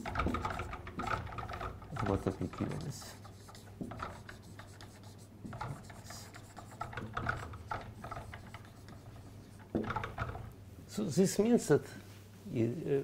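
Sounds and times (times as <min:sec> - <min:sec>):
marker writing on whiteboard: 0:00.0 - 0:10.5.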